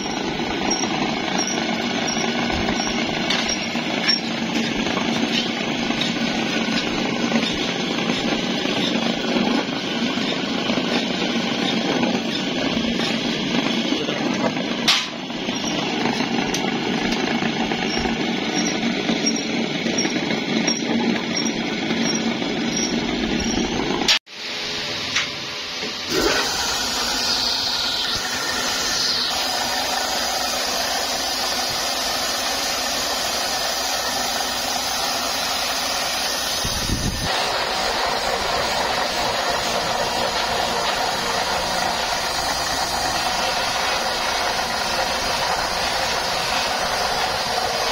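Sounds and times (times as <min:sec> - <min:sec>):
belt-driven machinery running: 0:00.0 - 0:24.2, 0:26.1 - 0:47.9
buffing wheel polishing steel: 0:26.1 - 0:47.9.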